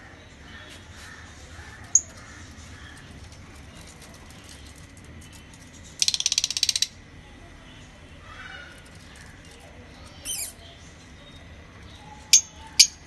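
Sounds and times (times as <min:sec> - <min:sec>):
bird rattling chatter: 0:01.1 - 0:07.0, 0:08.6 - 0:11.1
bird high chirp: 0:10.1 - 0:13.0.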